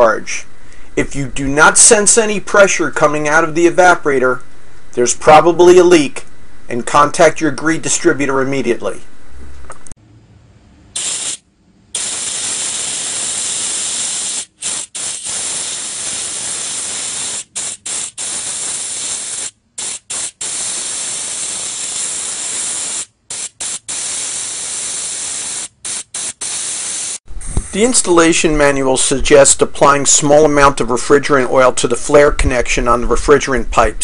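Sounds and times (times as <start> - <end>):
gas hissing out of a line: 11.0 - 27.8.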